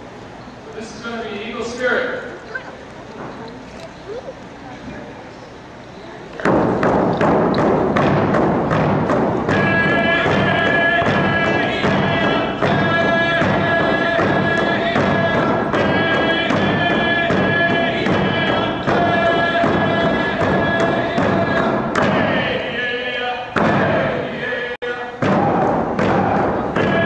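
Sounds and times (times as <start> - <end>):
group of voices singing: 9.5 - 27.0.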